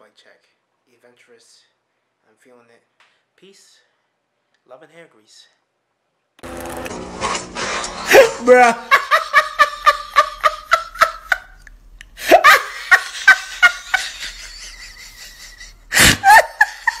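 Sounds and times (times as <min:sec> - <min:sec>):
person laughing hard: 0:08.1 - 0:11.6, 0:12.2 - 0:17.0.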